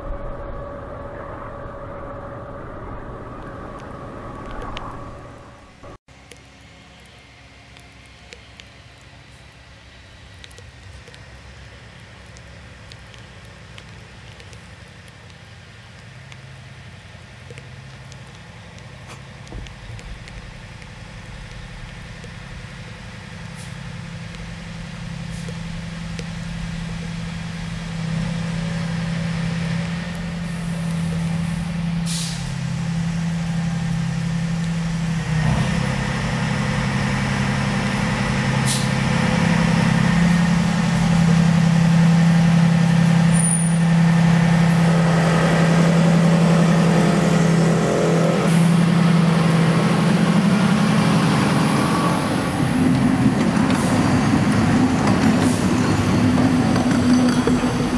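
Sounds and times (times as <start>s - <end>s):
diesel locomotive engines droning: 0.0s - 57.9s.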